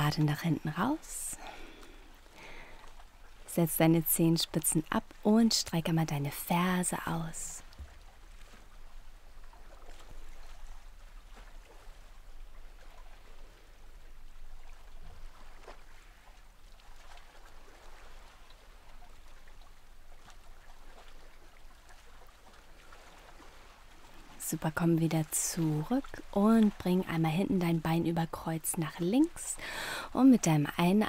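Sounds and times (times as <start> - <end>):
faint steady hiss: 0.0 - 31.0.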